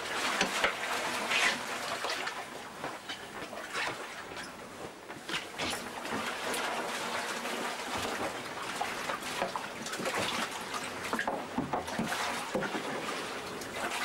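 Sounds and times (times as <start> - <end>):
water sloshing and trickling: 0.0 - 14.0
small knocks and clatters: 2.8 - 6.2, 9.2 - 13.2.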